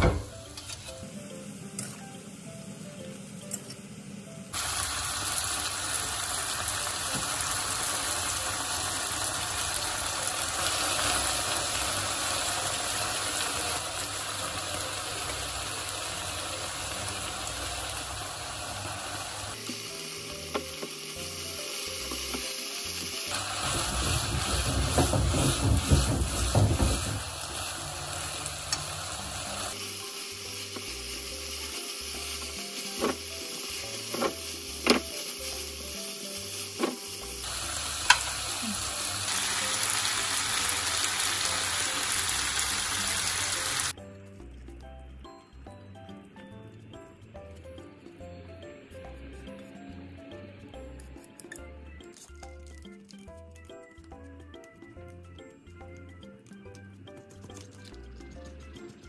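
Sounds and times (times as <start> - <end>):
pasta sizzling in a frying pan: 4.5 - 44.0.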